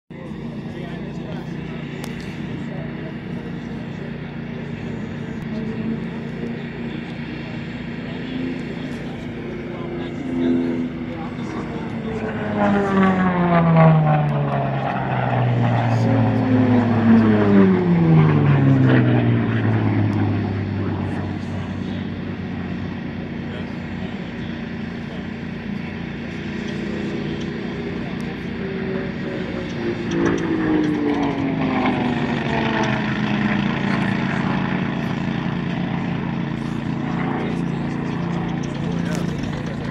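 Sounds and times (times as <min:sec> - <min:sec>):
low engine drone: 0:00.1 - 0:39.9
propeller aircraft flying past: 0:00.1 - 0:39.9.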